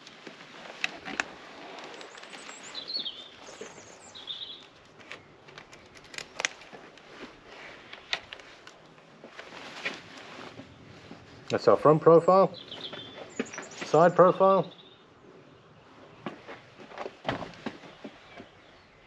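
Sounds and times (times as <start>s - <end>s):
faint outdoor background: 0.0s - 19.0s
bird chirps: 1.9s - 5.3s, 12.2s - 16.3s.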